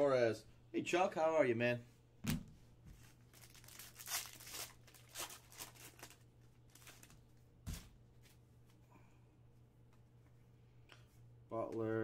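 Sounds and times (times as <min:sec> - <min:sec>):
foil wrapper tearing and crinkling: 0:03.3 - 0:07.2.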